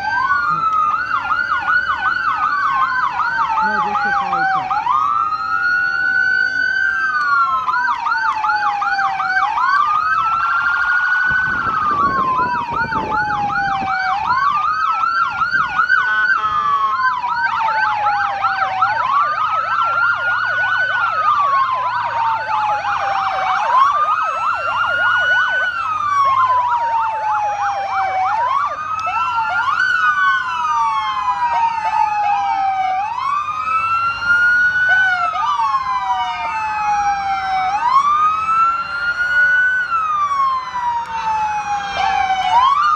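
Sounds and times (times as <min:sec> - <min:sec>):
police siren wailing: 0:00.0 - 0:42.9
yelp sirens: 0:00.0 - 0:42.9.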